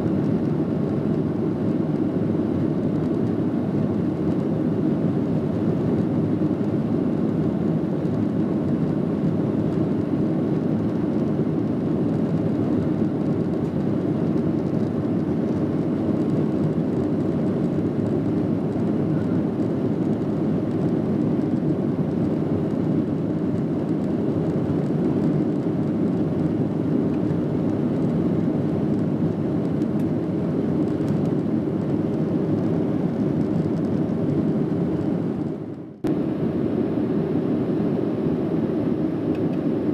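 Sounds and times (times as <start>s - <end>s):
jet engine rumble: 0.0s - 39.9s.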